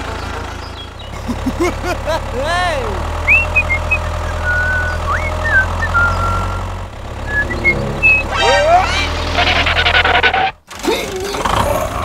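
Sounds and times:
tractor engine running: 0.0s - 12.0s
bird-like chirps and whistles: 3.2s - 6.7s, 7.3s - 9.3s.

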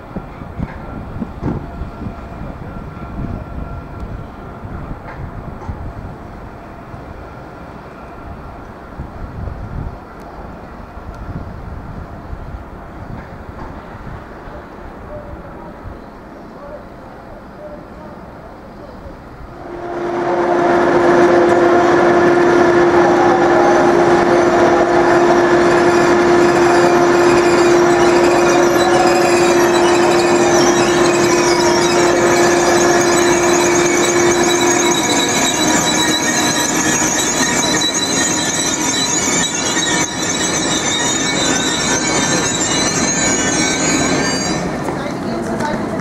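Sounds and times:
train rolling noise: 0.0s - 46.0s
train wheels squealing on rails: 18.7s - 46.0s.

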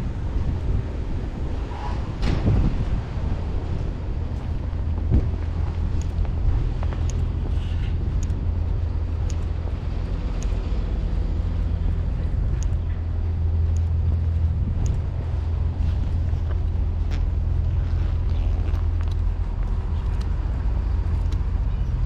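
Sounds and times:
low engine drone: 0.0s - 22.0s
faint light ticks: 5.1s - 20.4s, 21.1s - 22.0s.

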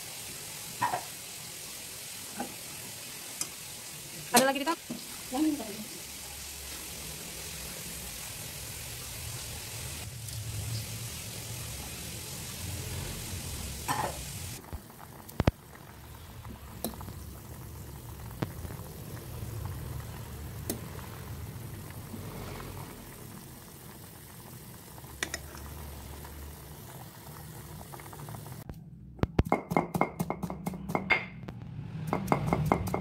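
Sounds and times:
pot simmering bubbling: 0.0s - 28.7s
meat pounded on stone mortar: 29.3s - 31.3s.

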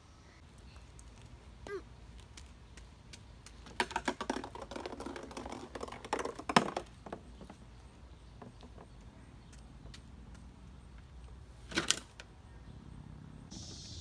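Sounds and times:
plastic balls clattering: 3.7s - 7.2s.

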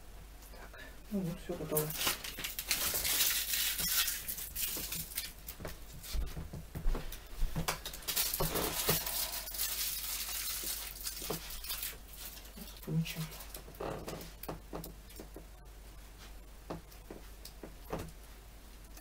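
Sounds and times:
steady low hum: 5.0s - 19.0s.

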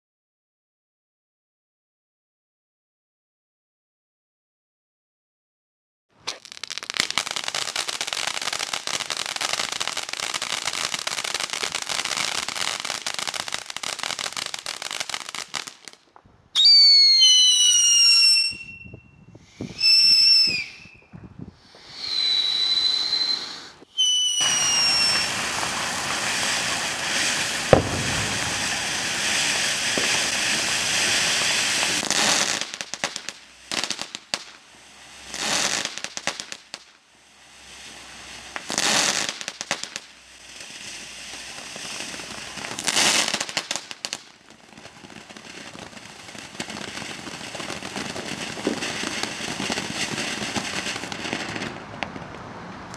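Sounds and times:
sharp pop: 6.2s - 6.5s, 27.7s - 28.8s
fireworks crackling hiss: 6.2s - 18.6s, 19.3s - 52.9s
whistling fireworks: 6.2s - 52.9s.

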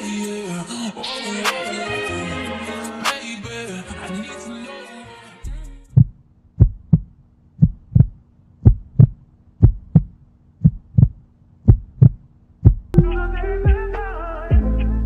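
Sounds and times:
heartbeat thumps: 5.5s - 13.9s.

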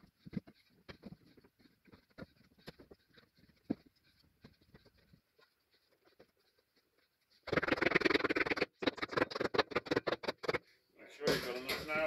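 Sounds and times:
loud rapid clatter: 7.5s - 10.6s.

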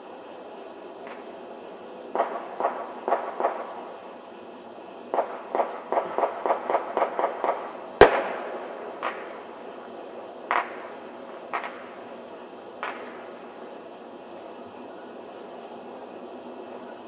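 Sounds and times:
distant fireworks popping: 0.0s - 17.0s
loud firework bang: 5.2s - 9.4s.

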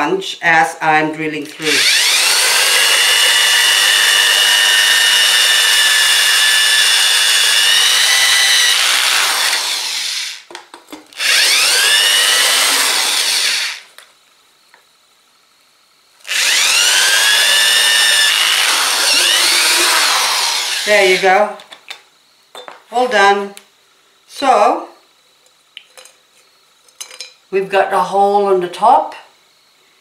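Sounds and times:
drill grinding through ceramic: 1.5s - 10.5s, 11.2s - 13.9s, 16.2s - 21.5s.

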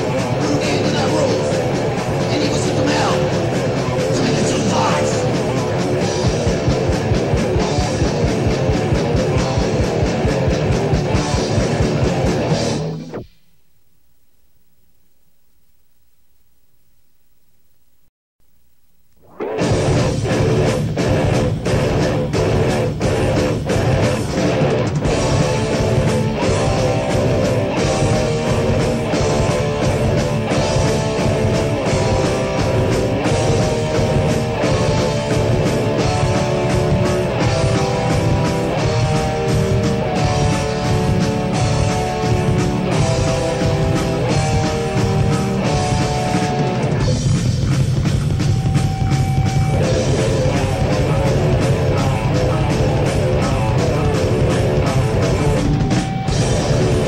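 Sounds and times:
heavy metal band playing: 0.0s - 13.2s, 19.4s - 57.0s
held electric guitar notes: 19.1s - 57.0s.

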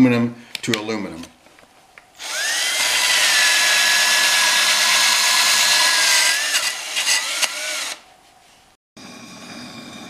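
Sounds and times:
drill motor whine: 2.2s - 8.0s.

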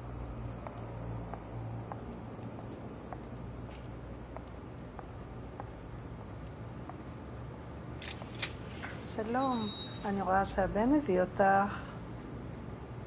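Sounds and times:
footsteps walking: 0.0s - 9.0s
crickets chirping: 0.0s - 13.0s.

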